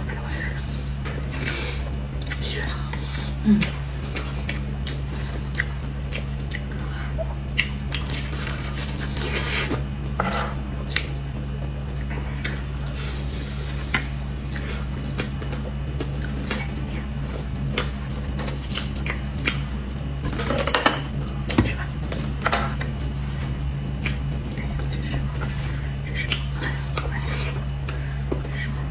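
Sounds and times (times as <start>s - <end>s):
steady low hum: 0.0s - 28.9s
wet mouth sounds: 3.3s - 9.9s.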